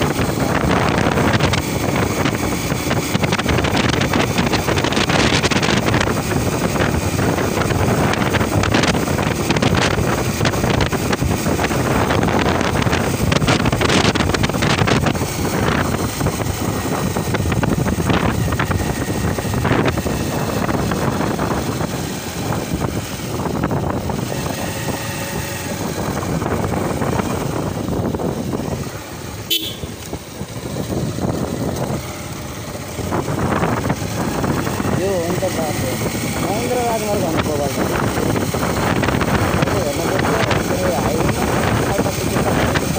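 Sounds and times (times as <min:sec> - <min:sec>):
motorcycle engine: 0:00.0 - 0:42.9
wind rushing over microphone: 0:00.0 - 0:42.9.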